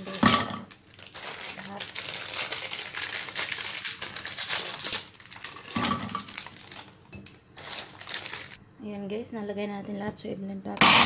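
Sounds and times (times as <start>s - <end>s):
plastic wrapper crinkling: 0.0s - 8.6s.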